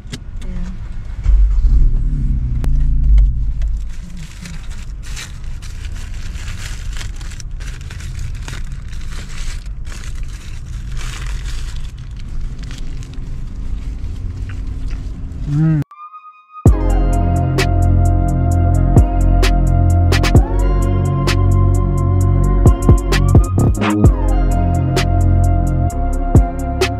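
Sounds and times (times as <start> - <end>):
car engine rumbling: 0.0 - 15.8, 16.7 - 26.9
paper wrapper crinkling: 3.6 - 15.2.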